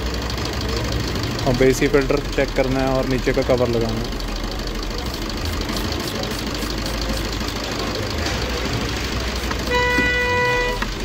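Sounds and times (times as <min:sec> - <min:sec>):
street and traffic noise: 0:00.0 - 0:11.0
vehicle horn honk: 0:09.6 - 0:11.0.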